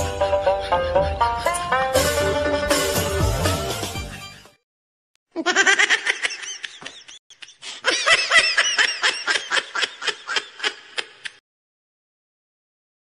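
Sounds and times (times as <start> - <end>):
high-pitched human laughter: 5.3 - 11.4.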